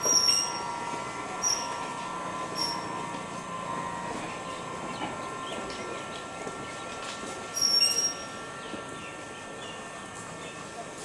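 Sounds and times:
electric train whine and rumble: 0:00.0 - 0:11.0.

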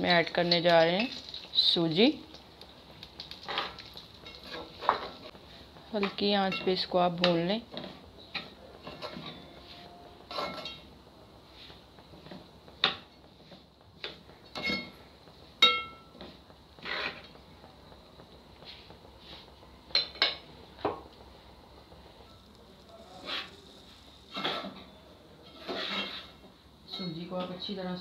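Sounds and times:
metal spatula scraping a metal pot: 0:16.8 - 0:17.3, 0:23.1 - 0:24.8, 0:25.4 - 0:27.1.

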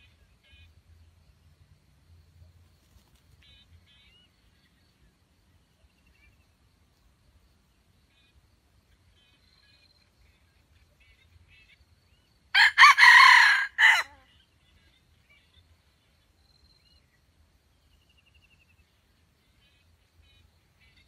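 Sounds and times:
rooster crowing: 0:12.6 - 0:14.2.

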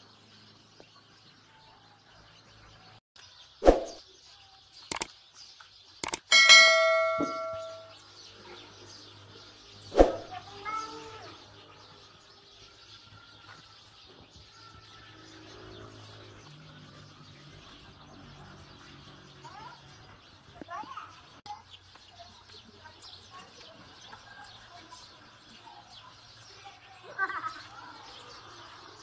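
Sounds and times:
faint bird chirps: 0:03.4 - 0:05.2
steel utensil ringing: 0:06.3 - 0:07.9.

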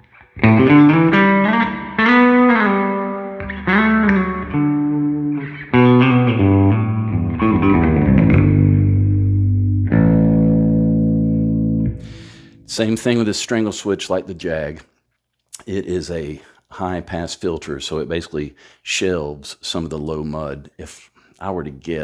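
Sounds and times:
bass guitar picked notes: 0:00.0 - 0:12.8
bass guitar chord ringing: 0:00.4 - 0:12.7.

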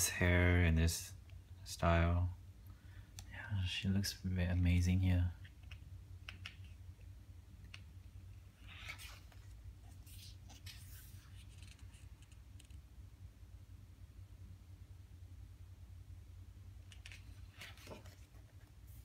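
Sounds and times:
steady low hum: 0:00.0 - 0:19.0
paper rustling of page turning: 0:08.6 - 0:12.8, 0:16.9 - 0:19.0.

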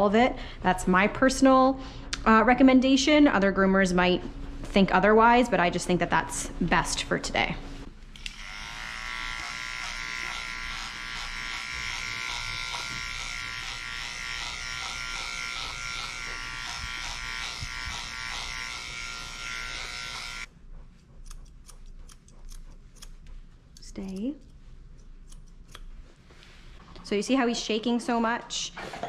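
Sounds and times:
electric clippers running: 0:08.1 - 0:20.5
scissors snipping: 0:21.2 - 0:25.9.

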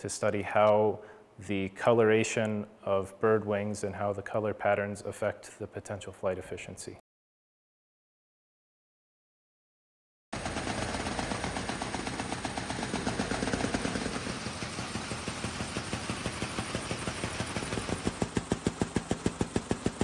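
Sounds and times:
mechanical wing rattle: 0:10.4 - 0:20.0.

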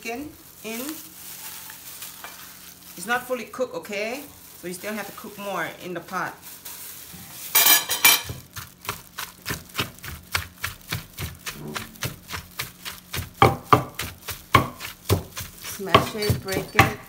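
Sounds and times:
knife chopping on cutting board: 0:08.2 - 0:17.0.

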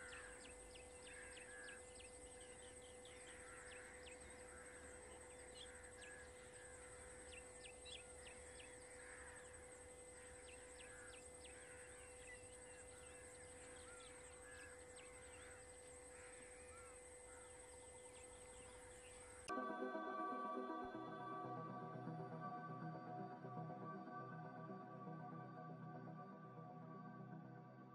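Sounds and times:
high-pitched hum: 0:19.5 - 0:27.9.

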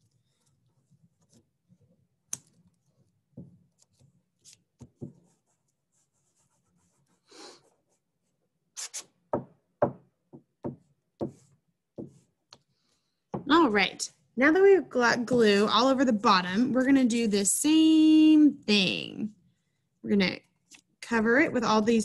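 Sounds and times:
glue spreading on paper: 0:02.5 - 0:09.2.

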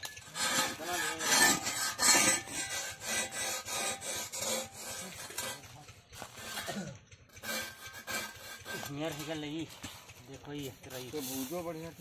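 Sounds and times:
hoe blade rasping on skin: 0:00.2 - 0:06.7, 0:07.4 - 0:09.5.

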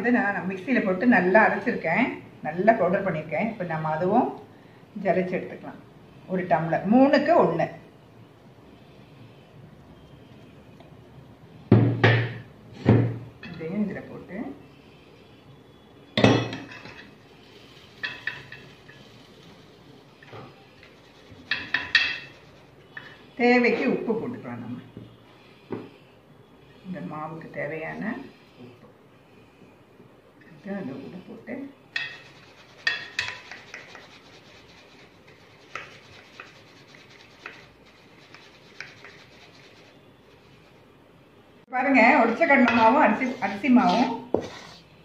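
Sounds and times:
sieve rubbing hiss: 0:32.0 - 0:40.9.

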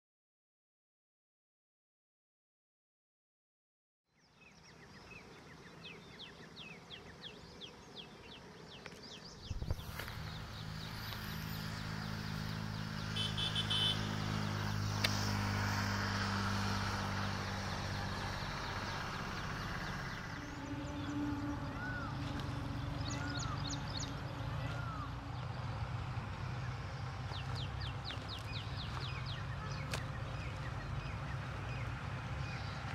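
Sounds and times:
birds chirping: 0:04.2 - 0:15.4, 0:16.0 - 0:32.9
rushing wind-like noise: 0:09.4 - 0:12.3.

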